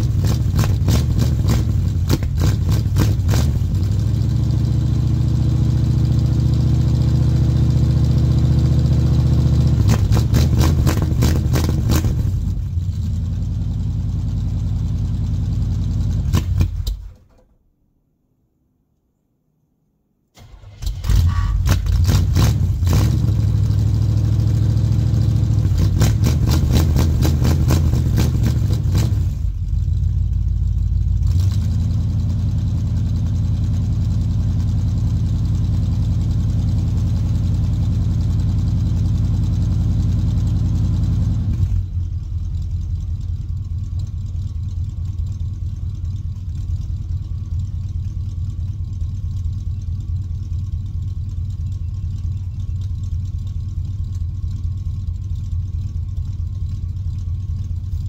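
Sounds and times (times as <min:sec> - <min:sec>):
engine idling: 0:00.0 - 0:17.4, 0:20.4 - 0:58.0
engine cold start: 0:20.4 - 0:23.3.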